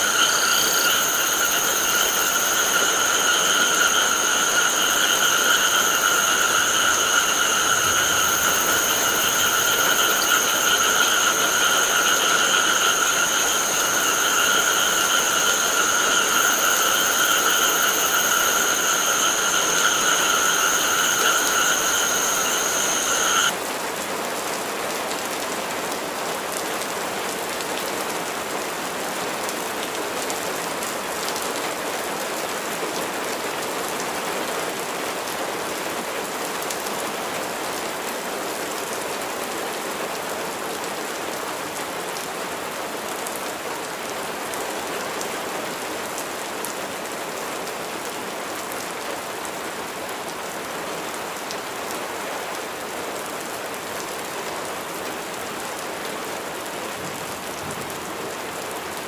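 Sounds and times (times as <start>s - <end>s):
steady rain hiss: 0.0s - 59.0s.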